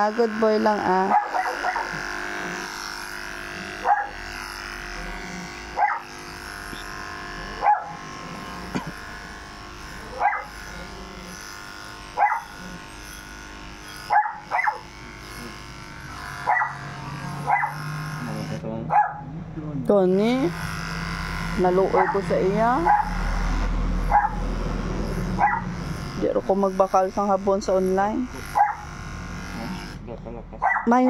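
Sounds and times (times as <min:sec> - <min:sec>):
electric pet clippers running: 0:00.0 - 0:31.0
dog barking: 0:01.1 - 0:02.0, 0:03.8 - 0:04.2, 0:05.8 - 0:06.1, 0:07.6 - 0:08.0, 0:10.1 - 0:10.5, 0:12.2 - 0:12.5, 0:14.1 - 0:14.9, 0:16.5 - 0:16.8, 0:17.5 - 0:17.8, 0:18.9 - 0:19.3, 0:22.9 - 0:23.2, 0:24.1 - 0:24.4, 0:25.4 - 0:25.7, 0:28.6 - 0:28.8, 0:30.6 - 0:31.0.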